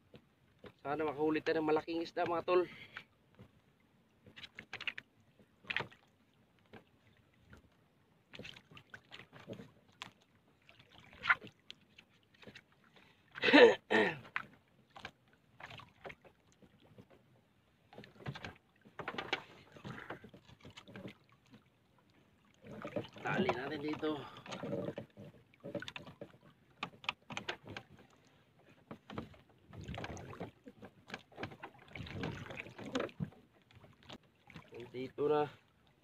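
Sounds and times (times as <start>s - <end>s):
knocks and rattles on a boat: 0.0s - 3.6s, 4.2s - 7.7s, 8.3s - 12.8s, 13.8s - 36.0s
water splashes: 4.2s - 17.2s, 17.8s - 36.0s.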